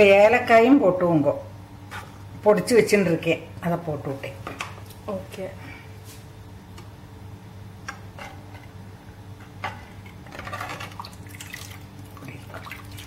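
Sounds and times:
liquid sloshing and dripping: 10.7 - 13.0.

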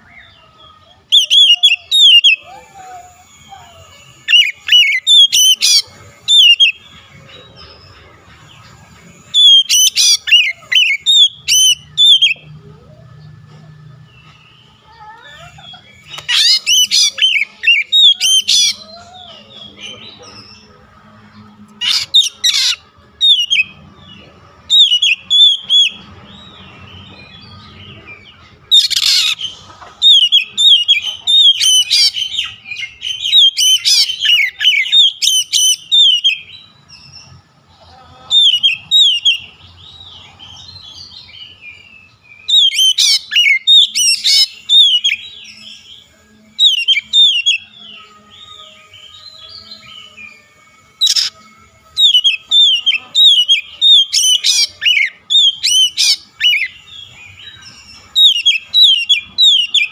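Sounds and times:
bird singing whistled notes: 8.6 - 14.9, 21.8 - 37.2, 38.4 - 59.9.

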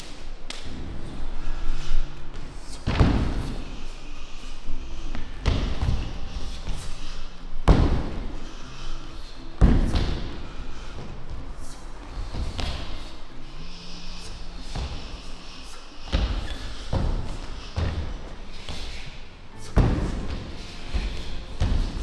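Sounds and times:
heavy thuds with echo: 2.7 - 3.8, 5.1 - 7.0, 7.6 - 8.4, 9.6 - 11.4, 16.0 - 22.0.

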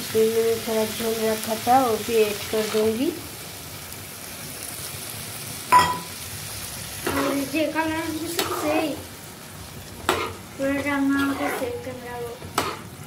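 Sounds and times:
ladle scraping across pan: 7.0 - 8.9, 10.0 - 13.0
ladle stirring simmering curry: 10.1 - 11.8.

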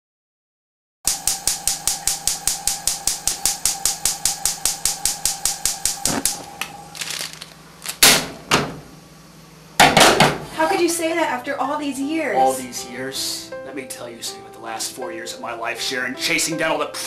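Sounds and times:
gas stove igniter clicking: 1.1 - 6.7
steady high tone: 1.1 - 7.2, 10.6 - 17.0.

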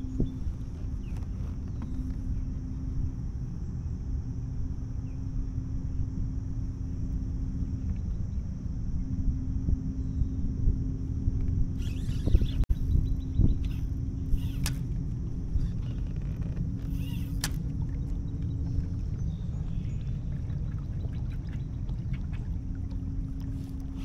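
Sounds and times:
faint hum: 0.0 - 24.0
low rumble: 12.4 - 24.0.

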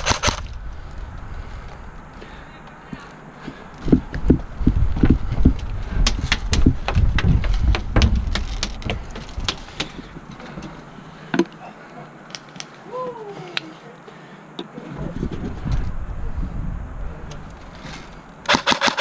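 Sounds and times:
airsoft gunfire clicks: 0.0 - 0.5, 18.5 - 19.0.

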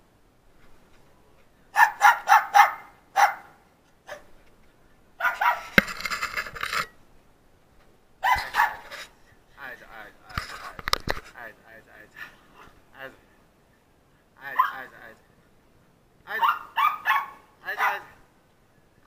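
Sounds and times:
small dog barking: 1.8 - 4.3, 5.2 - 5.7, 8.2 - 8.8, 14.5 - 14.9, 16.3 - 18.2.

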